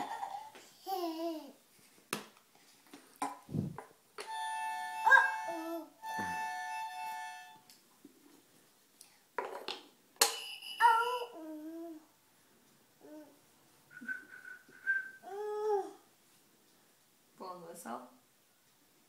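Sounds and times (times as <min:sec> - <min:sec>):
toddler babbling: 0:05.1 - 0:06.0, 0:10.8 - 0:12.1, 0:13.0 - 0:13.4, 0:15.2 - 0:16.1.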